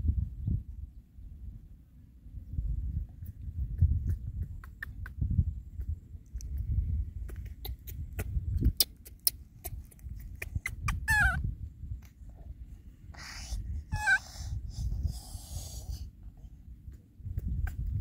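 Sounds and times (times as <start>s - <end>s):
wind rumbling on microphone: 0.0s - 18.0s
baby monkey squealing: 9.0s - 11.4s, 13.9s - 14.4s.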